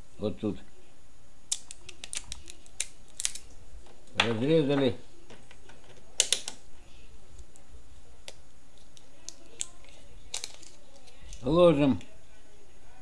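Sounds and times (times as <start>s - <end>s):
small objects clicking and clattering: 9.3s - 11.4s.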